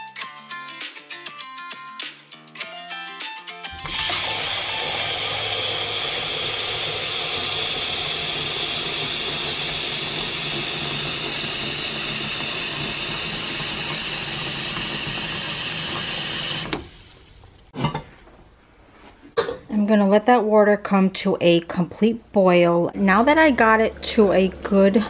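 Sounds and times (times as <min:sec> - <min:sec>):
tap water pouring into metal pot: 0:03.8 - 0:17.7.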